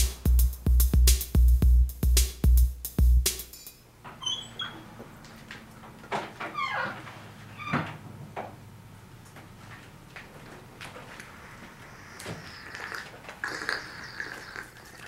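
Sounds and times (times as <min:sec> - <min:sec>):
door creaking: 0:04.1 - 0:08.6.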